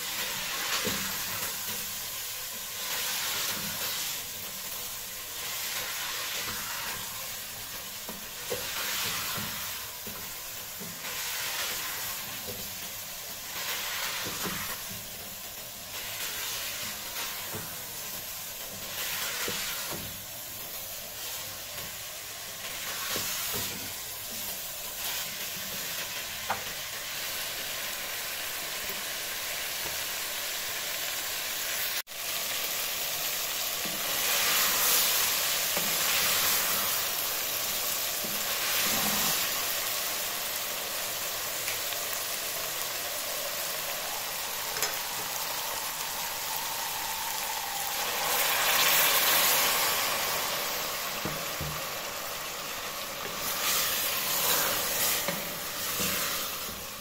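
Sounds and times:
vegetables sizzling in hot oil: 0.0s - 57.0s
stirring with wooden spoon: 53.0s - 57.0s.

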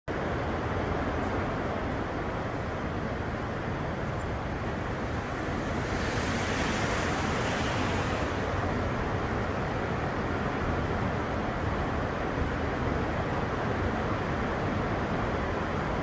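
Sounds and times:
heavy rain pouring: 3.3s - 10.6s.

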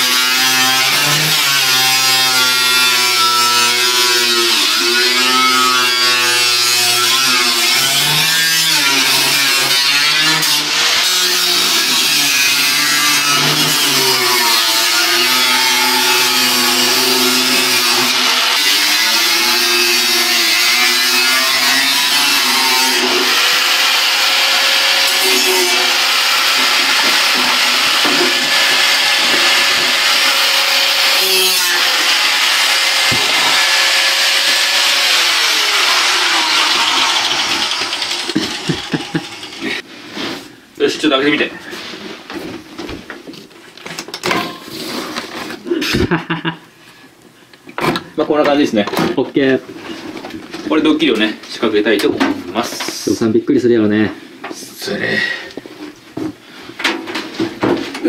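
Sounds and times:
angle grinder cutting metal: 0.0s - 39.9s.

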